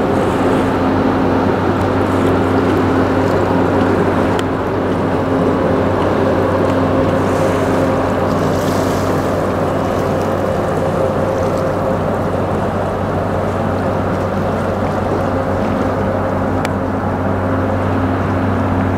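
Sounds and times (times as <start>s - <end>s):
churning propeller wash: 0.0s - 18.9s
diesel engines droning: 0.0s - 18.9s.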